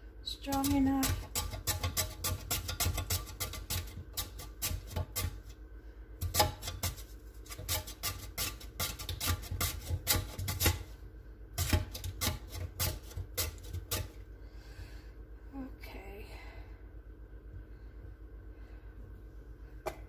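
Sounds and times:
potato rasping on metal grater: 0.3s - 5.6s, 6.2s - 10.9s, 11.6s - 14.2s.

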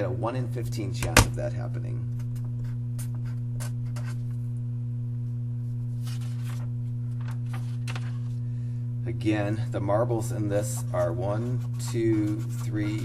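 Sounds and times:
low hum: 0.0s - 13.0s
paper sheet rustling: 5.7s - 8.4s, 10.6s - 13.0s
pen writing on paper: 10.6s - 13.0s.

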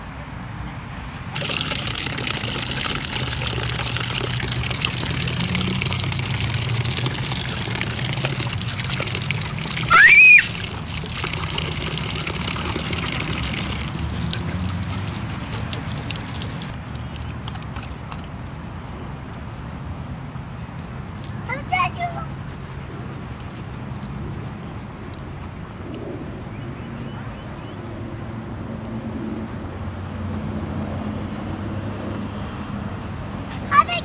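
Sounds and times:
water splashing into steel bowl: 1.4s - 18.3s.

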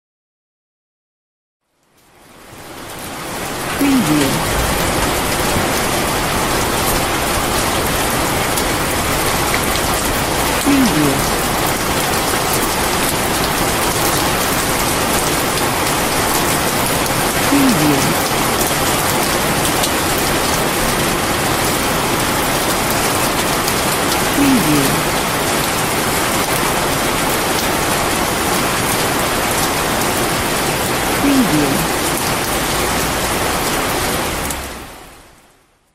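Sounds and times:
heavy rain: 1.6s - 35.9s
voice saying a watermark word: 3.8s - 4.5s, 10.6s - 11.3s, 17.5s - 18.3s, 24.4s - 25.1s, 31.2s - 32.0s.

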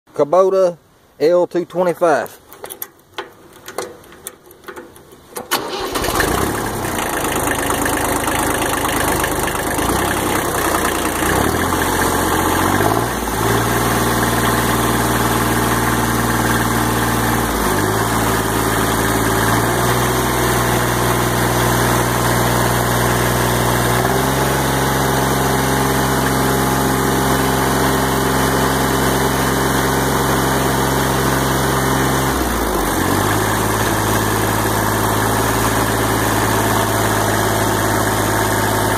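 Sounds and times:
diesel engine cranking and running: 5.2s - 38.9s.

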